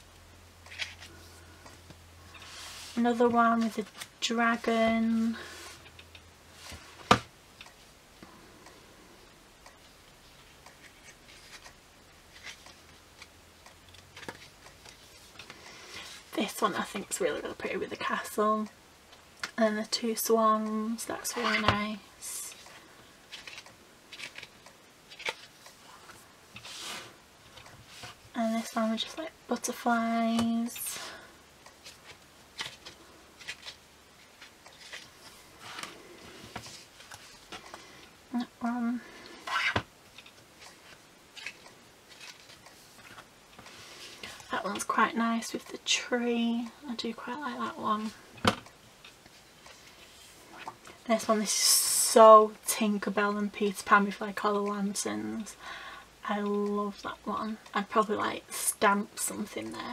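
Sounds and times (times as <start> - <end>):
paper rustling: 31.8 - 37.9, 39.5 - 44.4.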